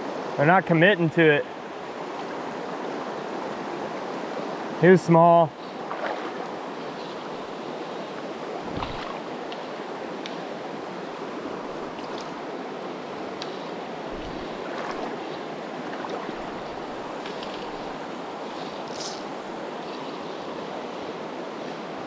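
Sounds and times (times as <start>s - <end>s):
faint ticks: 13.4s - 13.6s.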